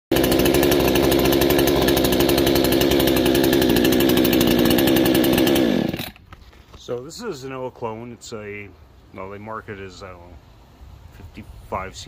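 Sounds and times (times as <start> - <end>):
chainsaw running: 0.1 - 6.2.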